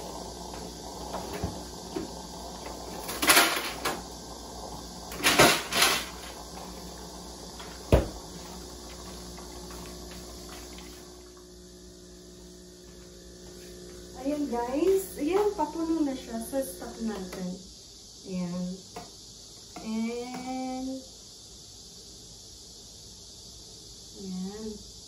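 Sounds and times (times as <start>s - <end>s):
coffee machine pump hum: 0.0s - 17.8s.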